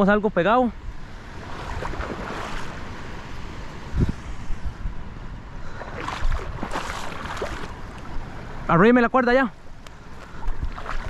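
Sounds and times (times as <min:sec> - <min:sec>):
wind buffeting microphone: 0:00.8 - 0:08.6, 0:10.1 - 0:11.0
water lapping: 0:01.2 - 0:03.5, 0:05.6 - 0:08.5, 0:10.0 - 0:11.0.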